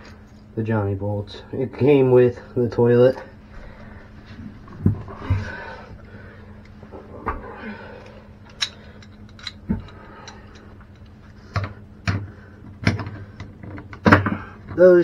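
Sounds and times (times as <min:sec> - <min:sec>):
faint low hum: 0:00.0 - 0:15.0
metal pliers clicking and tapping: 0:08.5 - 0:10.6.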